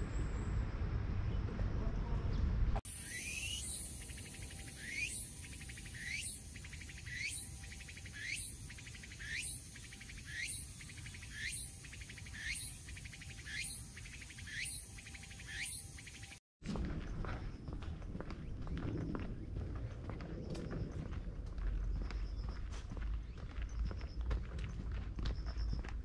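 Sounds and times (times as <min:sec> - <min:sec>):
insects buzzing and chirping: 0:02.9 - 0:16.4.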